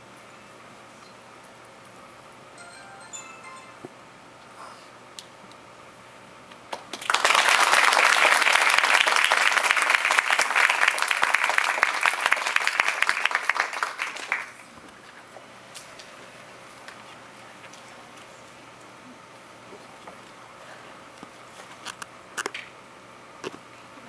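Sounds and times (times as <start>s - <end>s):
audience applauding: 6.7s - 14.6s.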